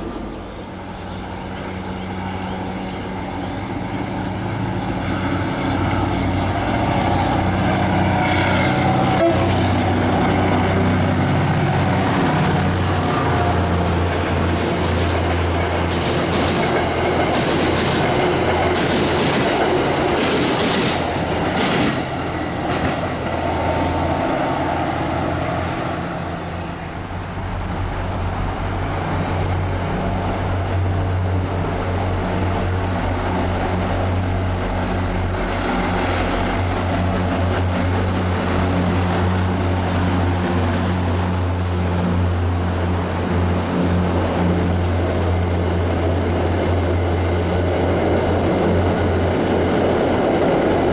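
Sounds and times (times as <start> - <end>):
train rolling by with low drone: 0.0 - 50.9
train wheels clicking over rail joints: 13.8 - 24.3.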